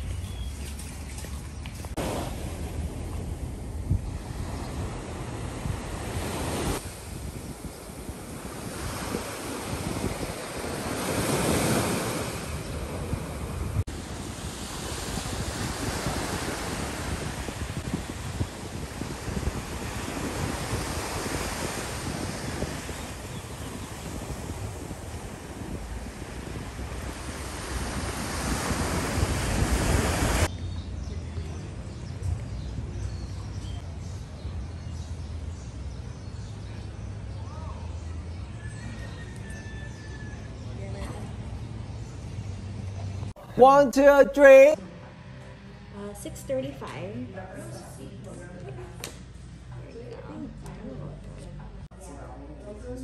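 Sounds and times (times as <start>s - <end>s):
small waves washing on sand: 0.0s - 30.5s
wind rumbling on microphone: 0.0s - 43.4s.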